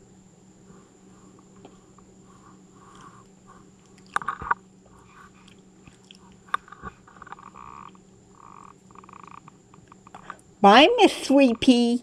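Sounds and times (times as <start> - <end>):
raccoon chewing food: 1.7 - 10.3.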